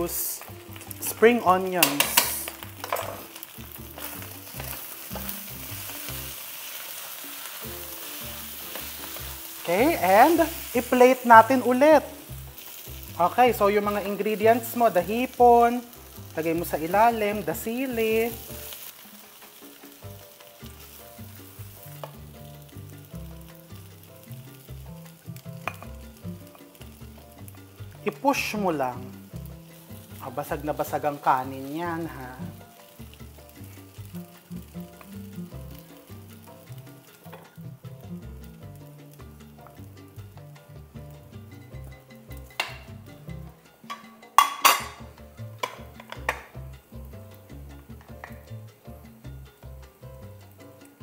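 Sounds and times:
rice sizzling in a wok: 0:00.0 - 0:51.0
background music with bass line: 0:19.9 - 0:51.0.

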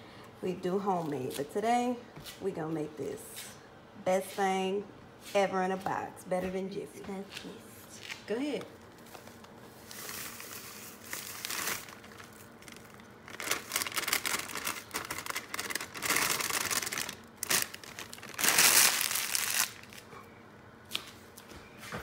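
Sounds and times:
box packaging crinkling and tearing: 0:09.1 - 0:20.1.

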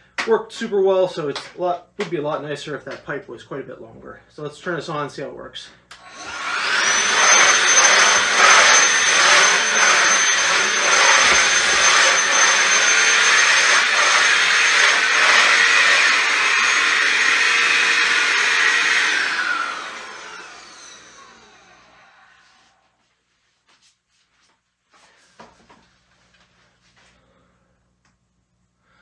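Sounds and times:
handheld vacuum motor whine: 0:06.0 - 0:22.8.

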